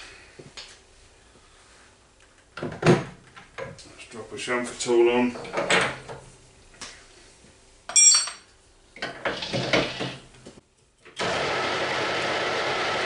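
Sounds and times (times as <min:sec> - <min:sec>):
metal lathe running: 0:11.2 - 0:13.0.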